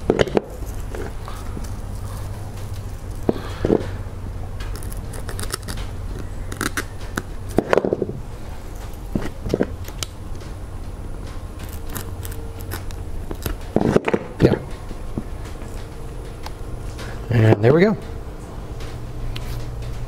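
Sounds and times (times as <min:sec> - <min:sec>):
steady low hum: 0:00.0 - 0:20.0
knife cutting and tearing filler: 0:00.2 - 0:04.0, 0:04.6 - 0:08.0, 0:11.6 - 0:14.6.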